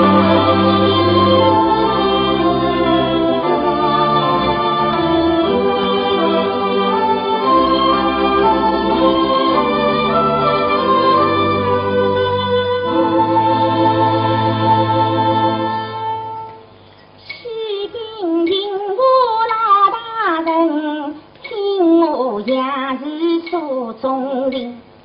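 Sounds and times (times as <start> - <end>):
organ-like held chord: 0.0 - 16.8
woman singing with vibrato: 5.5 - 14.4, 17.3 - 24.9.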